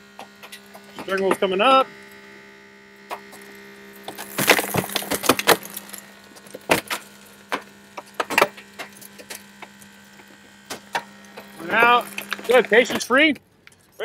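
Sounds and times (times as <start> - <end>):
hydraulic tool hum: 0.0 - 14.0
snapping and cracking of metal: 3.1 - 14.0.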